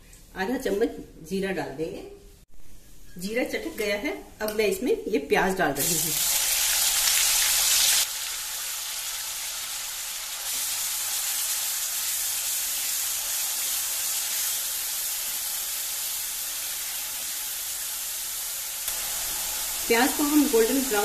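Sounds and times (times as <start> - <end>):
onions sizzling in hot oil: 5.8 - 21.0.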